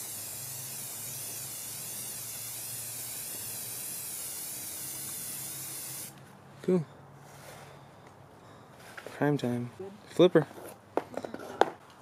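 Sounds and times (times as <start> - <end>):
aerosol spray can hissing: 0.0 - 6.2.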